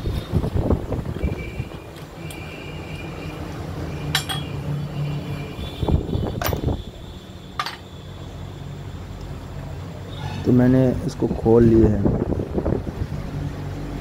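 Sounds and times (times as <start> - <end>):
metal parts clinking on steel: 4.1 - 4.5.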